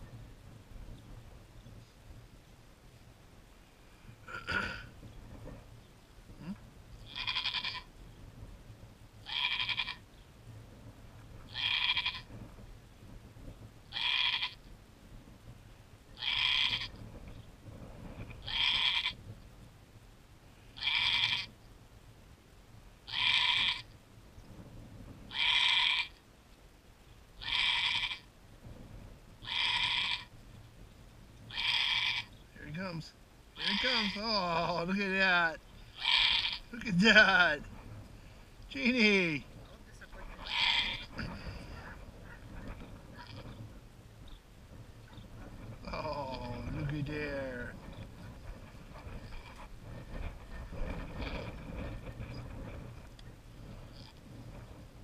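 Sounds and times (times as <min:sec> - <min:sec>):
goat bleating: 0:06.4 - 0:07.9, 0:09.2 - 0:10.0, 0:11.5 - 0:12.3, 0:13.9 - 0:14.6, 0:16.2 - 0:16.9, 0:18.4 - 0:19.2, 0:20.8 - 0:21.5, 0:23.1 - 0:23.9, 0:25.3 - 0:26.2, 0:27.4 - 0:28.3, 0:29.4 - 0:30.3, 0:31.5 - 0:32.3, 0:33.6 - 0:34.7, 0:35.9 - 0:37.3, 0:40.4 - 0:42.0.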